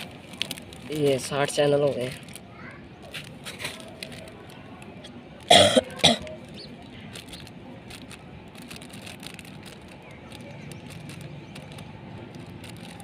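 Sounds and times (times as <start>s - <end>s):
person coughing: 5.5s - 6.2s.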